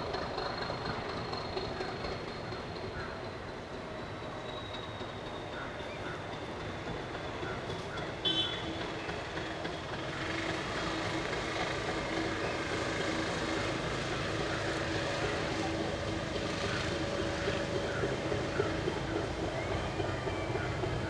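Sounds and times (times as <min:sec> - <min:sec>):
coaches rolling on track: 0:00.0 - 0:21.0
diesel train engine drone: 0:00.0 - 0:21.0
high squeal: 0:04.1 - 0:05.8.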